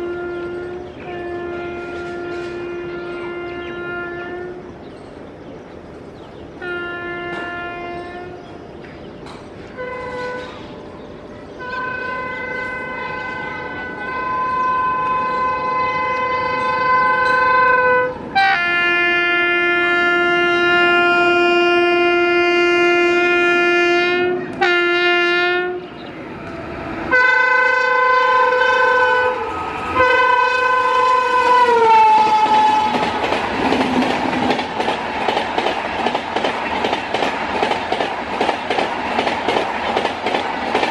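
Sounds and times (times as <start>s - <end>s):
locomotive horn blasts: 0.0s - 4.7s, 6.6s - 8.4s, 9.8s - 11.0s, 11.6s - 33.1s
train rumble: 0.0s - 40.9s.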